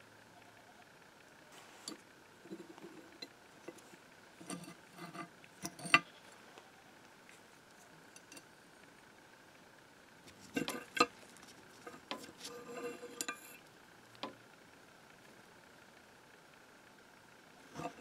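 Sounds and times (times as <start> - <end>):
metal parts clicking and clinking: 1.9 - 6.1, 10.4 - 11.2, 11.8 - 13.6.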